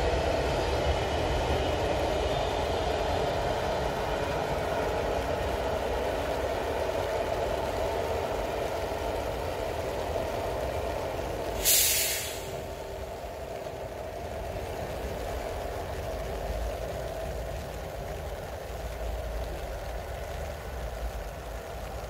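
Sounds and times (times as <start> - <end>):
high-speed train rumbling past: 0.0 - 22.0
short loud hiss: 11.6 - 12.8.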